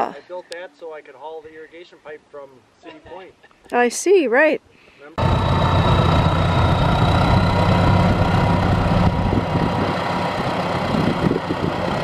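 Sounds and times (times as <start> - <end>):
tractor diesel engine running: 5.2 - 12.0.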